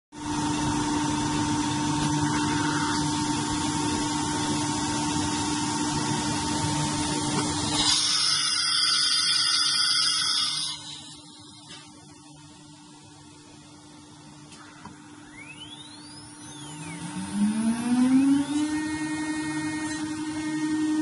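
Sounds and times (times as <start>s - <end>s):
router machine whirring: 7.4s - 11.6s, 15.2s - 21.0s.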